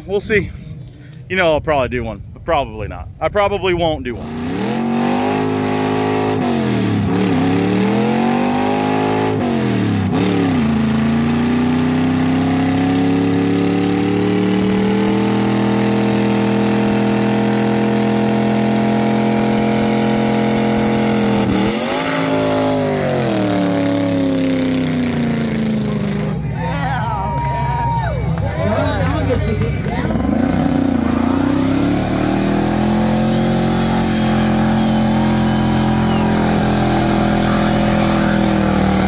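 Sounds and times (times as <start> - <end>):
car engine revving hard: 4.1 - 26.3, 29.9 - 39.0.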